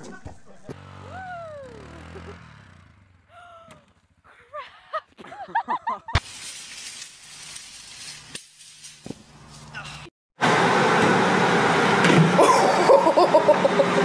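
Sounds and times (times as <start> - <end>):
atv engine running: 0.5 - 4.2.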